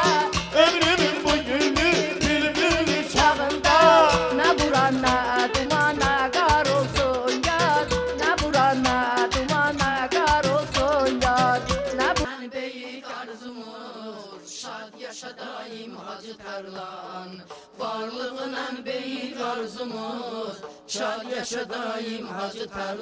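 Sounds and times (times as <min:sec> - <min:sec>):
loud band music with deep beat: 0:00.0 - 0:12.3
women singing folk song: 0:00.0 - 0:23.0
handclaps: 0:03.7 - 0:12.3.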